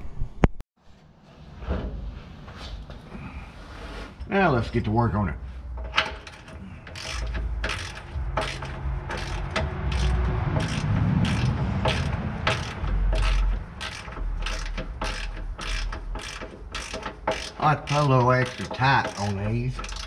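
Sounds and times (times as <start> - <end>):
ratchet wrench clicking: 5.8 - 20.0.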